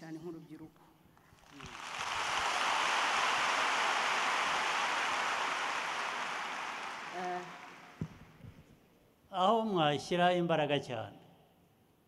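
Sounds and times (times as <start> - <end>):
audience applauding: 1.4 - 8.4.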